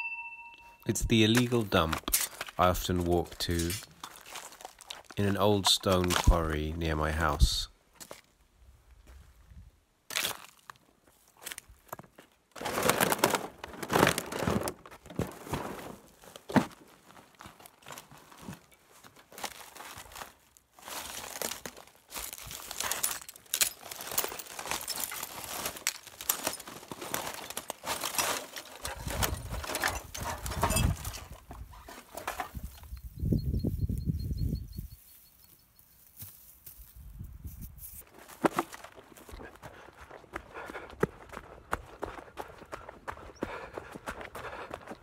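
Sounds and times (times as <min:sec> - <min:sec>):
plastic crinkling and crackling: 0:03.8 - 0:05.2, 0:12.6 - 0:15.9, 0:17.1 - 0:32.3.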